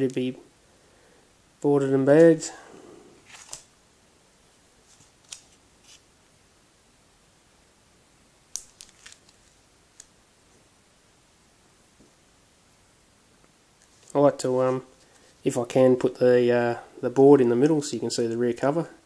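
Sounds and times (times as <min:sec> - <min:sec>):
plastic bag crinkling: 0:08.6 - 0:09.6.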